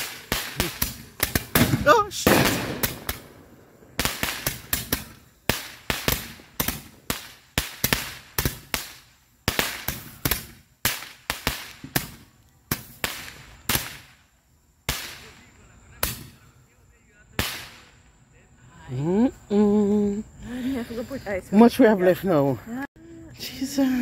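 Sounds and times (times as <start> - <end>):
fireworks bursting: 0.0 - 18.5.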